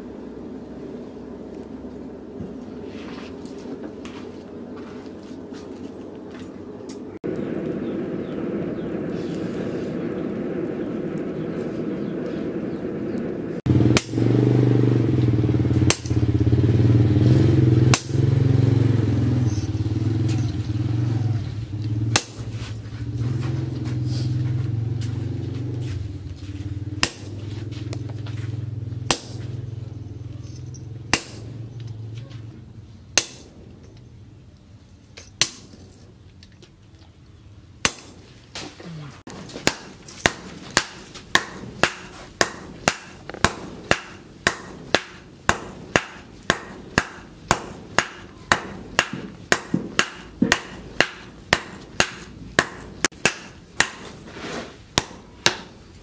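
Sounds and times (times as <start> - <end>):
low mechanical drone: 0.0 - 56.0
hammer striking hot steel on anvil: 13.8 - 16.6, 17.5 - 18.6, 22.1 - 24.0, 27.0 - 28.2, 29.0 - 29.8, 30.6 - 32.1, 33.2 - 33.6, 35.2 - 35.8, 37.8 - 38.4, 39.3 - 55.9.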